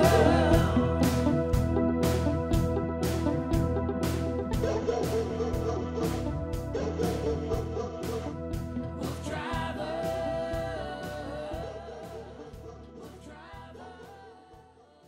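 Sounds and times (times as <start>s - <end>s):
person singing a long note: 0.0s - 1.3s
drum beat: 0.0s - 9.7s.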